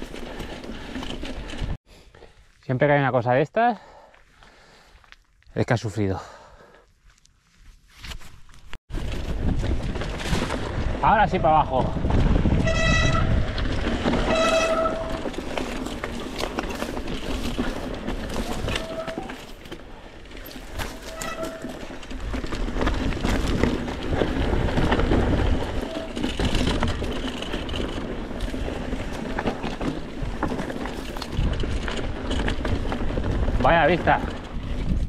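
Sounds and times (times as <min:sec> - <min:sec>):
bike tyres crunching over rock: 0:08.3 - 0:35.0.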